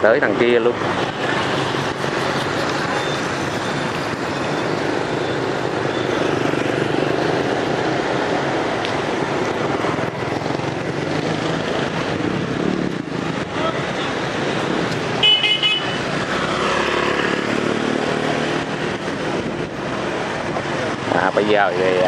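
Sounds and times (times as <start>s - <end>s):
scooters and motorbikes passing: 0.0s - 22.0s.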